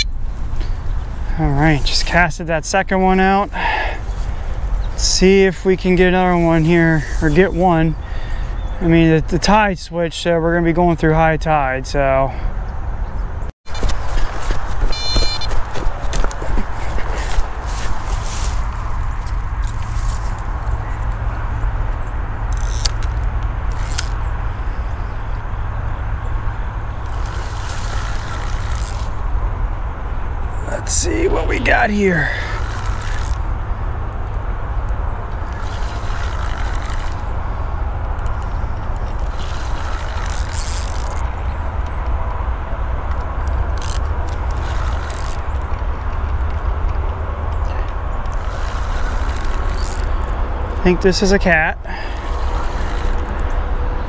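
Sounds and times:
fishing reel winding: 22.5 - 24.2, 27.0 - 29.2, 32.4 - 33.4, 35.5 - 37.3, 39.2 - 41.2, 43.8 - 45.5, 48.3 - 50.2, 52.1 - 53.4
low rumble of handling noise: 26.2 - 54.0.

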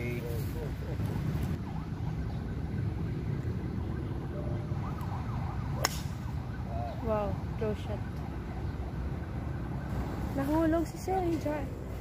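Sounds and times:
golf club striking ball: 5.8 - 6.2.

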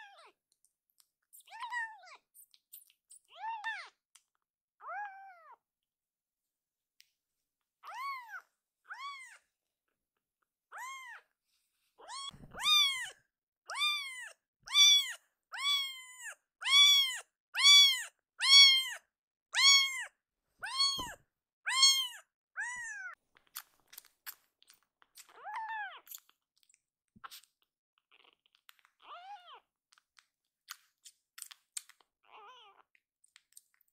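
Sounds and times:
kitten meowing: 1.4 - 2.2, 4.8 - 5.6, 7.8 - 9.4, 10.7 - 11.2, 12.0 - 23.2, 25.3 - 26.1, 29.0 - 29.6, 32.2 - 32.8.

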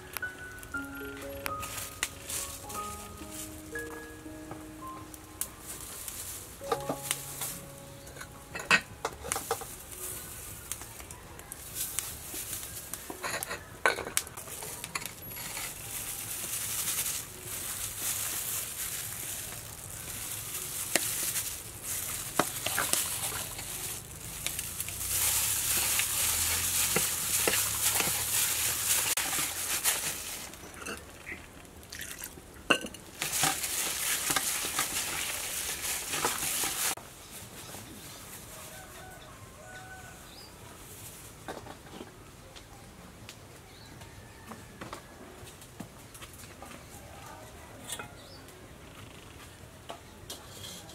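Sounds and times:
minced meat being mixed: 14.4 - 31.5, 33.2 - 37.0.

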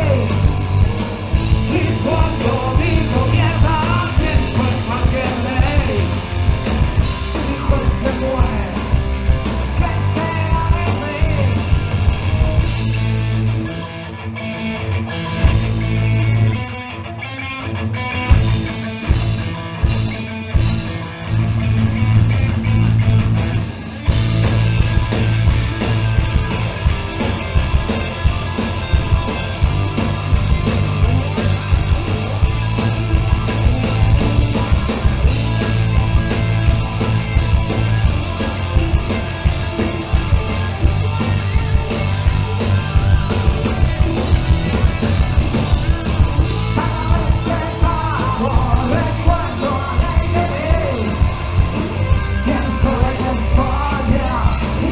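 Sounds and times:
punk rock band playing live: 0.0 - 54.9
person singing: 9.8 - 11.6, 46.6 - 51.3, 52.4 - 54.9.

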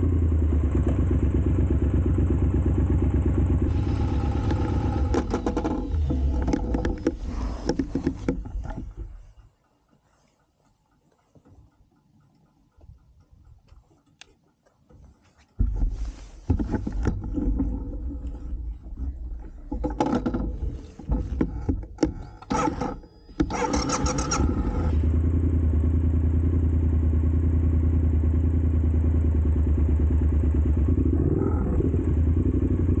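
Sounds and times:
motorcycle engine running: 0.0 - 9.5, 15.6 - 33.0
knocks and rustles: 4.4 - 9.5, 14.8 - 23.6.

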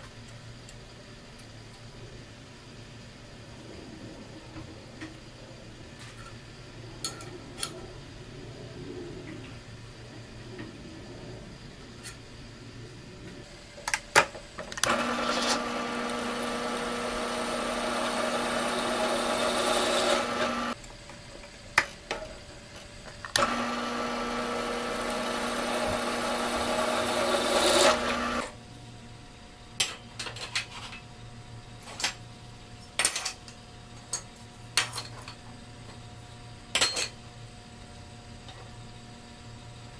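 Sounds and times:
drill press drilling steel: 14.8 - 20.8, 23.3 - 28.6.

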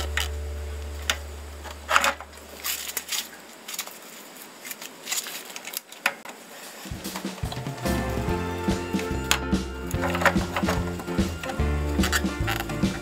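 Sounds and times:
low background music: 6.9 - 13.0.

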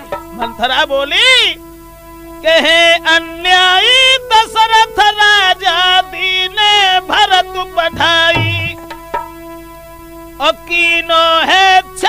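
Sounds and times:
held drone: 1.6 - 10.2
folk melody with sliding notes: 2.3 - 9.8.

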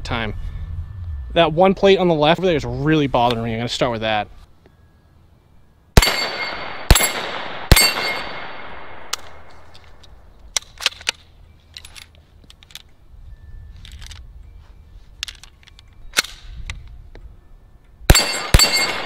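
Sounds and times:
steel plate target ringing: 6.0 - 9.0, 18.1 - 19.0
rifle shots: 6.0 - 9.7, 18.1 - 19.0.

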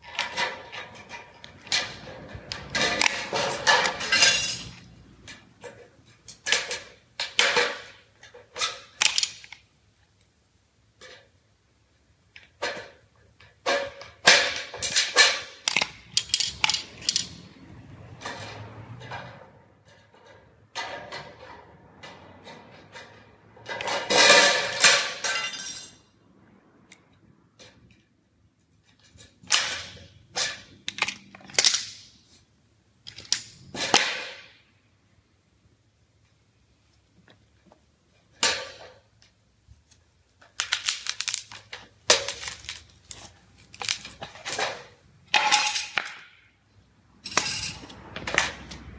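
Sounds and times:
thin metal sheet rattling: 0.0 - 9.4.

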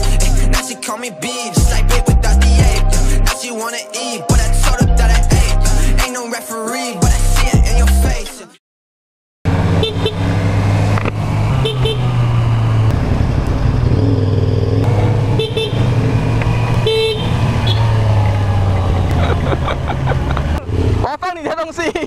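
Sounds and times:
motorcycle engine running: 9.5 - 21.1
short horn beeps: 11.6 - 12.1, 15.3 - 15.8, 16.8 - 17.9.

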